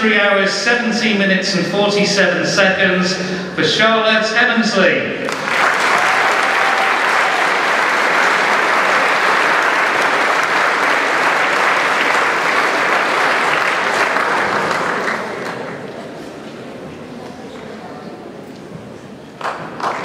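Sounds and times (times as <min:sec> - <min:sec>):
audience applauding: 0:05.2 - 0:16.2, 0:19.4 - 0:20.0.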